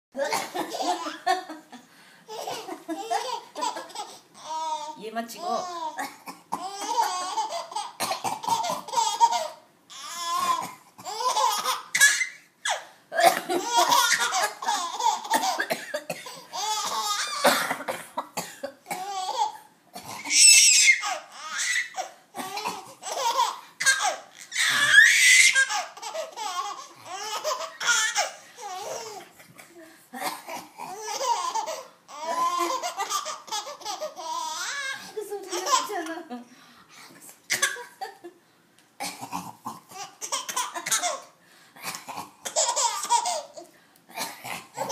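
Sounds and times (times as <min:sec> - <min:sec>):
baby laughing: 0:00.2 - 0:17.6, 0:18.9 - 0:36.2, 0:39.9 - 0:41.3, 0:42.4 - 0:43.7
adult coughing: 0:13.1 - 0:14.6, 0:15.2 - 0:19.1.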